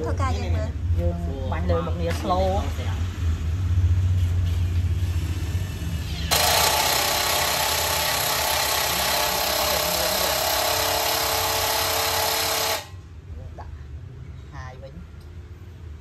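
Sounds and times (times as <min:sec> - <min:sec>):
impact driver rattling: 0:06.3 - 0:12.9.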